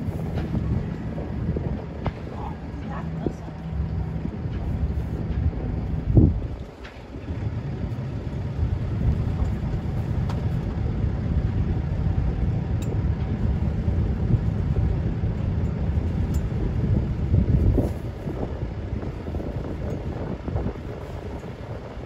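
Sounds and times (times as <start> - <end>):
boat engine running: 0.0 - 22.0
wind on microphone: 0.0 - 22.0.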